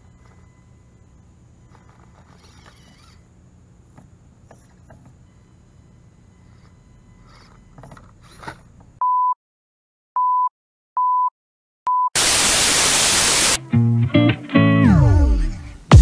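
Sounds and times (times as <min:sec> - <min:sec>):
tv static hiss: 0:12.2 - 0:13.6.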